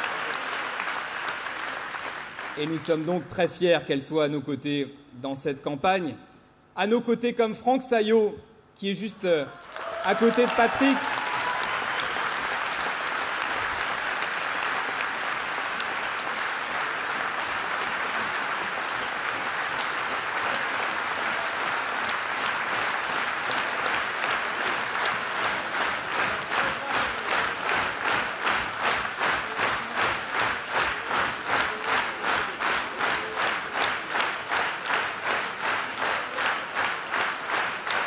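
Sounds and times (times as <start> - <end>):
rhythmic clapping in unison: 0.0 - 3.0, 9.6 - 38.0
large audience applauding: 0.0 - 3.1, 9.5 - 38.0.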